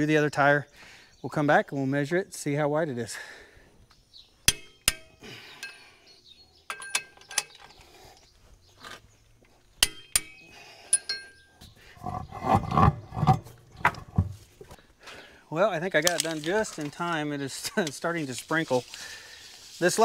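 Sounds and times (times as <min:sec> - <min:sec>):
metal tools clinking on steel: 0:04.5 - 0:08.3, 0:09.8 - 0:11.6.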